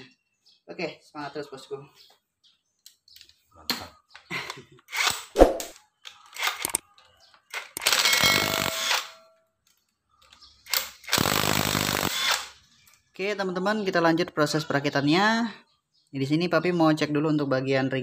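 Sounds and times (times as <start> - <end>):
power tool bursts: 7.9 - 9.2, 10.8 - 12.5.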